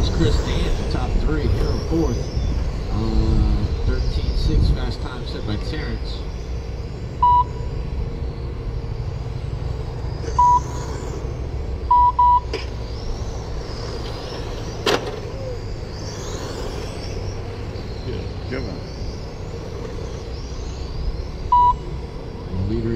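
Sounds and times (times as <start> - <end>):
short electronic beeps: 7.2 - 7.7, 10.4 - 10.7, 11.9 - 12.5, 21.5 - 21.9.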